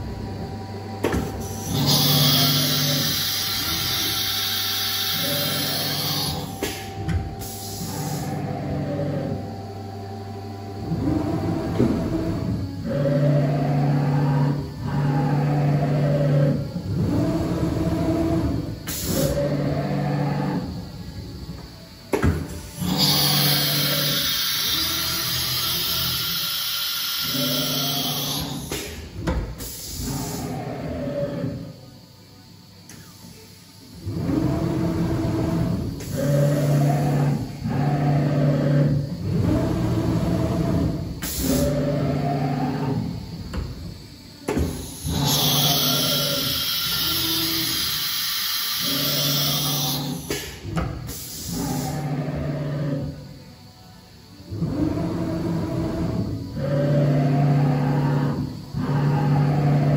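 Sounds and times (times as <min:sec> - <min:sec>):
cnc motors whining: 0:00.0 - 0:59.9
compressed air hiss: 0:44.6 - 0:51.9.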